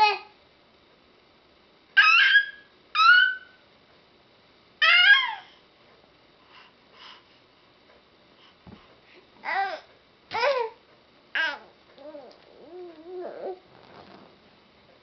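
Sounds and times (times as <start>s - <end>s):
infant squealing: 2.0s - 3.4s.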